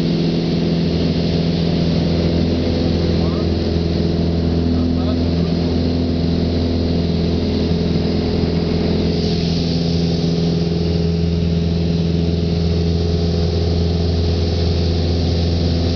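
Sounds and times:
light aircraft engine droning: 0.0s - 15.9s
air hiss over airframe: 9.0s - 10.7s.

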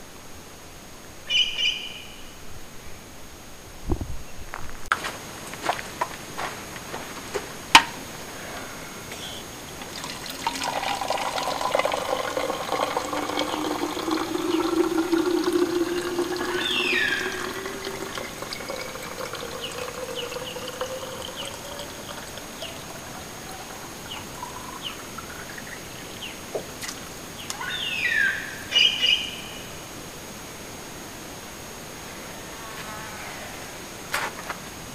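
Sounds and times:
birds chirping: 8.3s - 29.6s
water filling a bottle: 9.2s - 27.2s.

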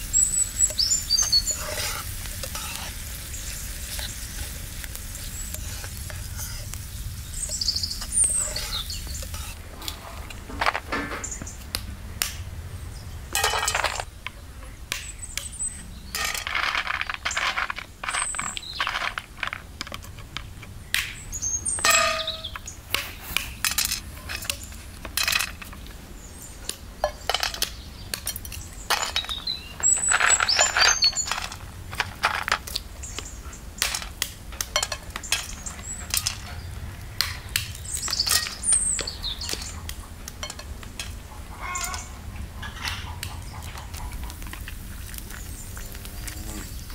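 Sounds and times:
shell pieces clinking in metal bowl: 13.3s - 14.1s, 16.1s - 20.0s, 21.8s - 22.6s, 27.0s - 32.8s, 33.8s - 36.6s, 37.2s - 39.7s, 40.3s - 42.1s
walnuts cracking on wood: 14.9s - 26.0s, 26.6s - 42.1s.

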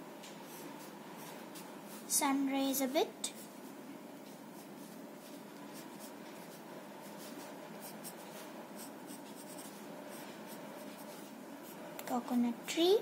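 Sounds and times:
pencil scratching on paper: 4.6s - 11.8s.

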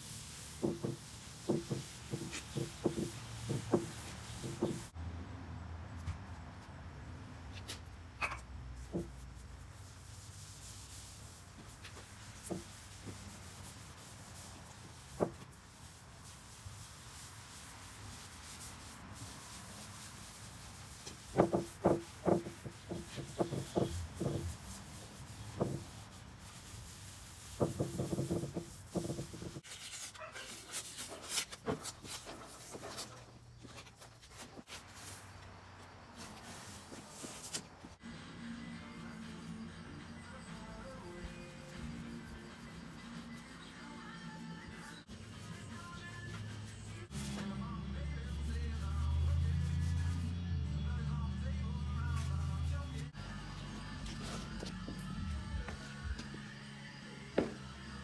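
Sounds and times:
cloth rubbing wood: 0.0s - 4.9s, 8.8s - 35.2s, 48.2s - 50.4s.

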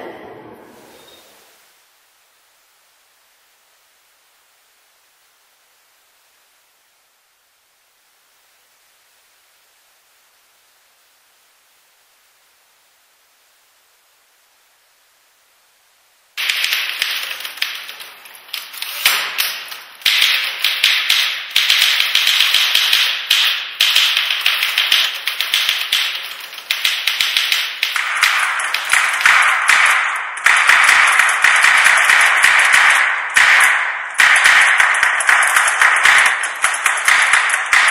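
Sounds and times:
rapid clatter of taps and clicks: 16.4s - 37.9s.

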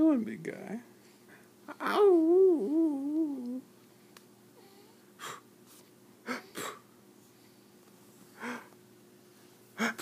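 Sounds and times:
newborn baby breathy noises: 9.8s - 10.0s.

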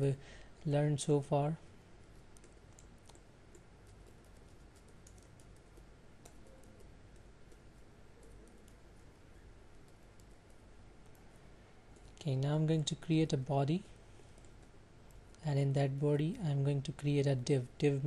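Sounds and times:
faint keyboard typing: 2.0s - 13.4s, 14.2s - 15.4s.

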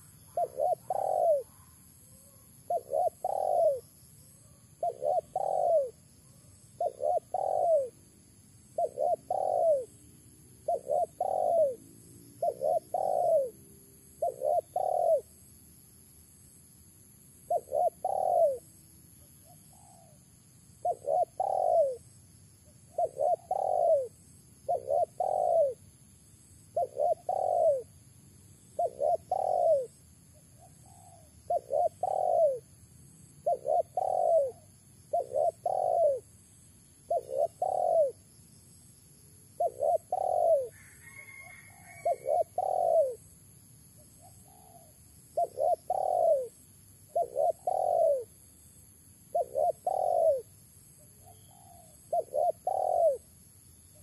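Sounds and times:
dove cooing: 0.0s - 8.1s, 8.7s - 15.4s, 17.5s - 18.7s, 20.8s - 22.1s, 22.9s - 25.9s, 26.7s - 28.0s, 28.6s - 36.4s, 37.0s - 38.3s, 39.6s - 43.3s, 44.1s - 48.4s, 49.3s - 53.3s.

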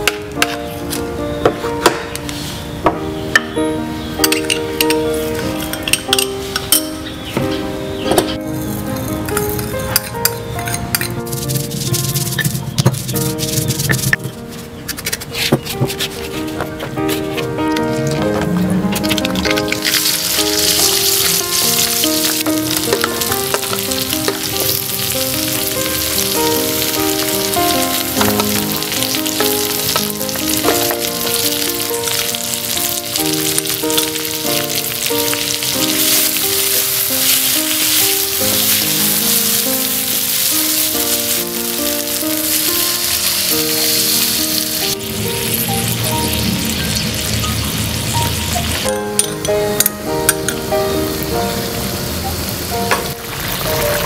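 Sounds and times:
background music: 0.0s - 54.0s
paste sizzling in hot oil: 19.6s - 48.9s.

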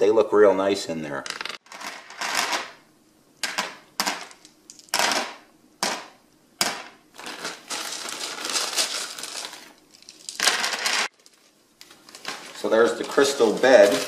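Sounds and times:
crystals clattering onto tray: 1.3s - 2.8s, 3.4s - 11.1s
crystals rattling: 7.2s - 14.0s.

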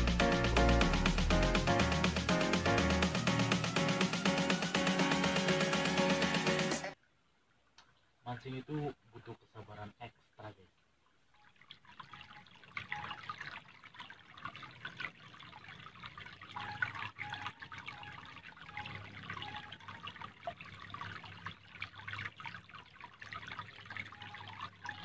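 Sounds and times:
stream water babbling over stones: 11.8s - 25.0s.

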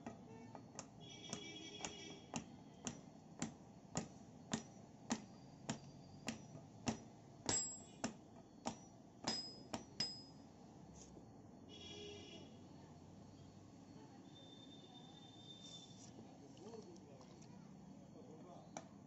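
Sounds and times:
hammer striking iron: 0.0s - 10.4s
high metallic ring: 4.5s - 10.6s.

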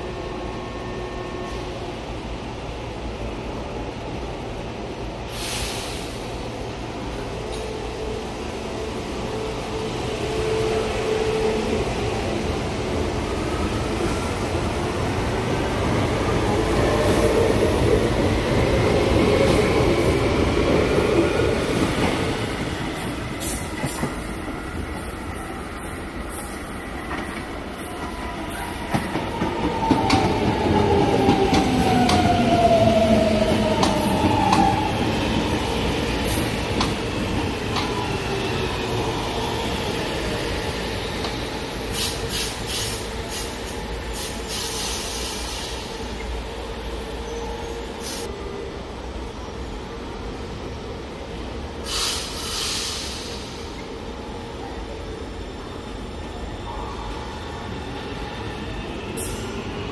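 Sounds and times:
train wheels rumbling: 5.3s - 46.2s.

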